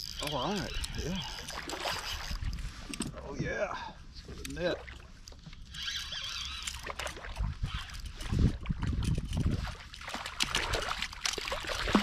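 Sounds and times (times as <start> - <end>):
fish splashing at the surface: 10.0 - 12.0.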